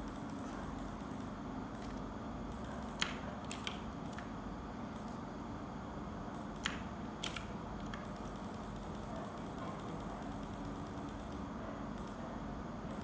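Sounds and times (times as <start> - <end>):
keyboard keys clicking: 0.0 - 4.3, 6.4 - 12.2
steady low hum: 0.0 - 13.0.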